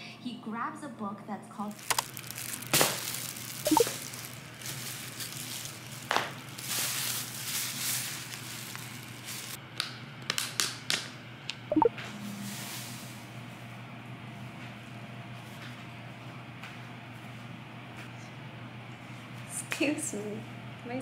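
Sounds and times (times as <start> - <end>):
plastic bag rustling: 1.7 - 9.6.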